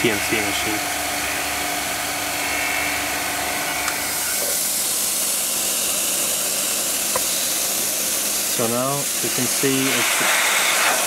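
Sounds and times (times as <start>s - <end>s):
compressor humming: 0.0s - 11.0s
compressed air hissing from nozzle: 3.7s - 11.0s.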